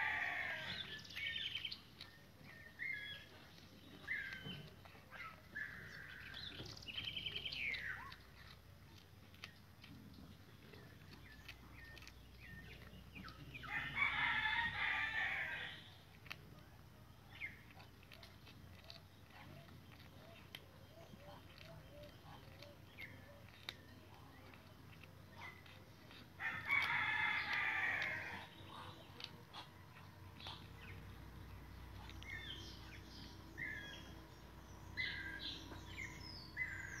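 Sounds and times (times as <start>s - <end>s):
birds chirping: 0.0s - 37.0s
faint background noise: 0.0s - 37.0s
rooster crowing: 13.7s - 15.7s.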